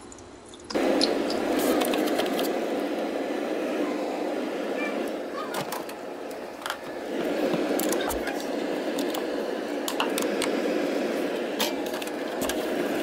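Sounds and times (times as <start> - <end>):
freezer rushing hum: 0.0 - 13.0
items clicking and rustling: 6.6 - 6.9, 11.6 - 12.7.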